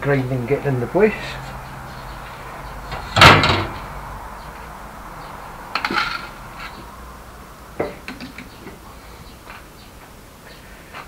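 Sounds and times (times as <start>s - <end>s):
loud metallic clank: 2.9s - 3.9s.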